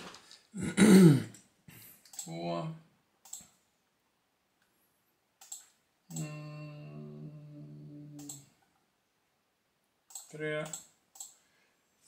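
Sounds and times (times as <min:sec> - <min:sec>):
click: 0:02.0 - 0:02.3, 0:03.2 - 0:03.6, 0:05.4 - 0:06.3, 0:08.2 - 0:08.4, 0:10.1 - 0:11.4
man humming a long note: 0:06.1 - 0:08.5.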